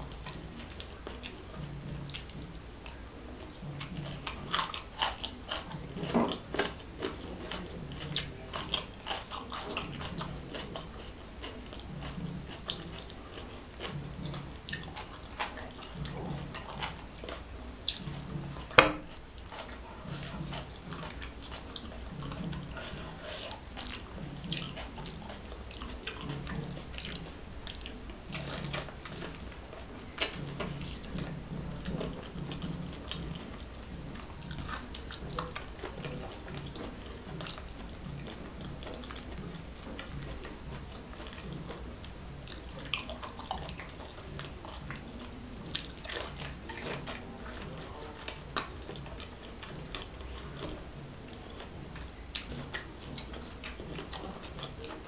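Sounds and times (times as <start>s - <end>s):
wet chewing: 0.0s - 55.0s.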